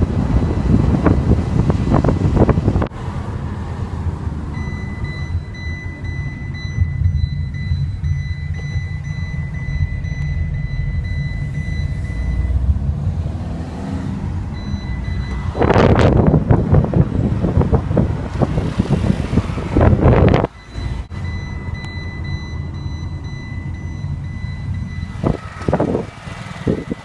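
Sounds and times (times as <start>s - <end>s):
scooter engine rumbling: 4.3s - 13.3s, 14.0s - 27.0s.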